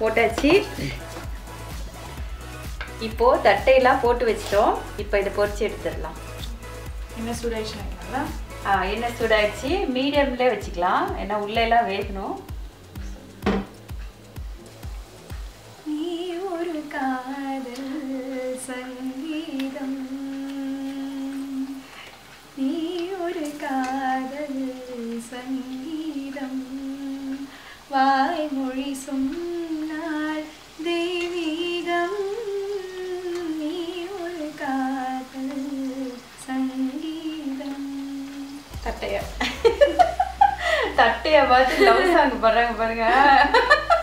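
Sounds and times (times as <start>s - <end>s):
woman humming: 0.0s - 1.1s, 15.9s - 21.8s, 22.6s - 27.5s.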